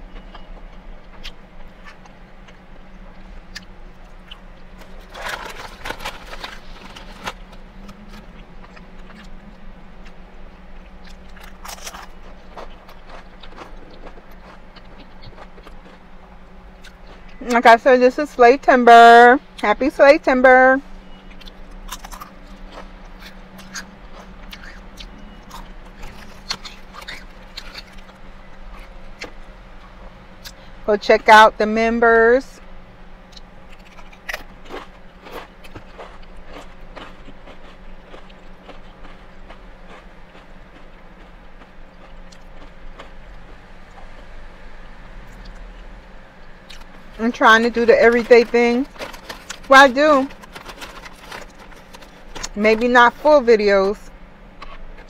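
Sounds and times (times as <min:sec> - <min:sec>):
steady low hum: 0:00.0 - 0:55.0
chewing: 0:00.1 - 0:17.5, 0:21.1 - 0:30.7, 0:33.3 - 0:44.3, 0:54.6 - 0:55.0
chip bag rustling: 0:04.8 - 0:07.6, 0:47.6 - 0:53.4.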